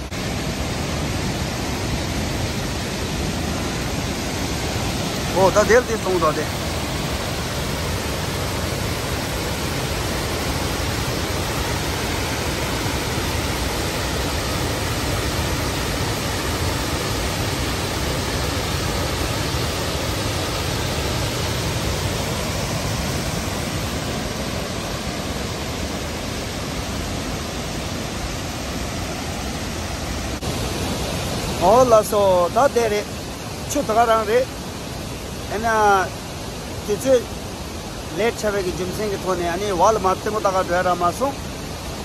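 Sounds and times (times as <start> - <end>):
waterfall rushing: 0.0 - 42.0.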